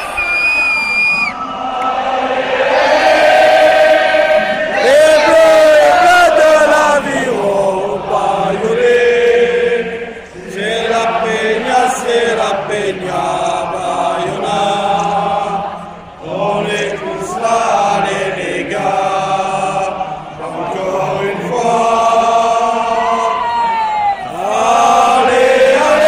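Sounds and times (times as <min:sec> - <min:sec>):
stadium crowd singing a chant: 0:01.2 - 0:26.0.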